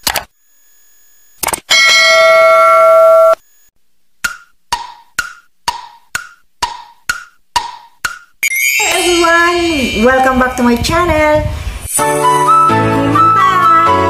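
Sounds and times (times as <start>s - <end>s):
bell-like ding: 1.7s - 3.3s, 8.4s - 10.5s
wood-block ticks: 4.2s - 8.4s.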